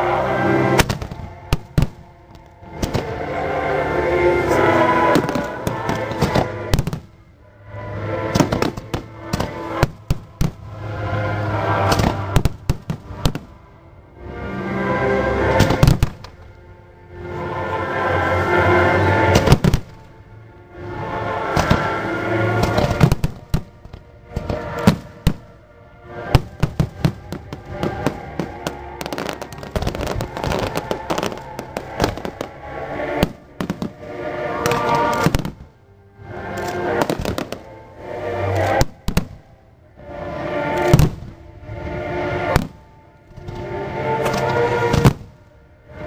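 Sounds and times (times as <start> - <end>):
orchestral music over loudspeakers: 0.0 - 46.0
fireworks bursting in sharp bangs: 0.8 - 2.1, 2.8 - 3.2, 5.0 - 7.2, 8.3 - 10.7, 11.9 - 13.5, 15.6 - 16.3, 19.3 - 20.0, 21.5 - 25.5, 26.3 - 35.7, 36.6 - 37.7, 38.6 - 39.5, 40.8 - 41.4, 42.4 - 42.8, 44.2 - 45.4.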